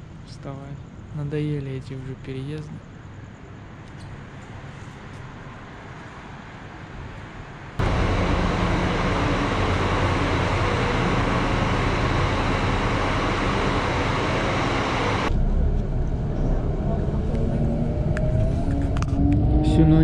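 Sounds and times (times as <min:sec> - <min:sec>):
bus engine hum: 0:06.8 - 0:20.0.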